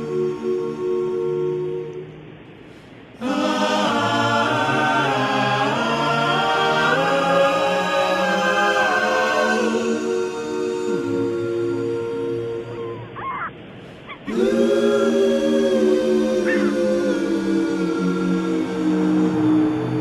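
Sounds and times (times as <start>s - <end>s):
a cappella voices singing harmony: 0.0s - 20.0s.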